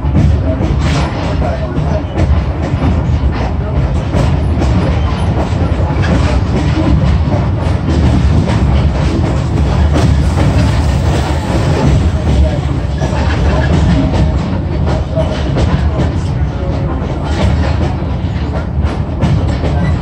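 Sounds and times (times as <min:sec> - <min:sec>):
train rumble: 0:00.0 - 0:20.0
wheels clicking on rails: 0:00.0 - 0:20.0.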